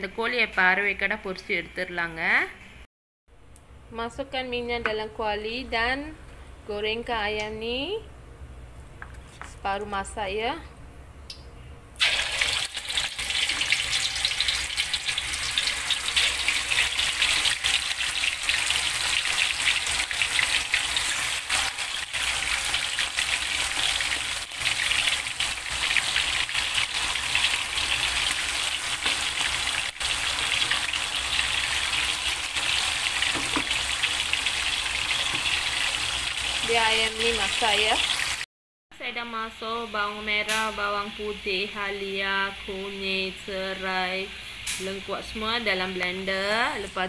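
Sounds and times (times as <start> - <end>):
chicken frying in hot oil: 12.0 - 38.4.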